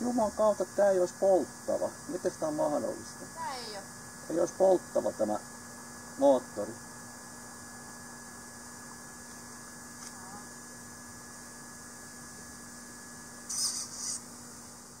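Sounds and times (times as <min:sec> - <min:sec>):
electrical hum: 0:00.0 - 0:15.0
faint high hiss: 0:00.0 - 0:15.0
burst of higher hiss: 0:13.5 - 0:14.3.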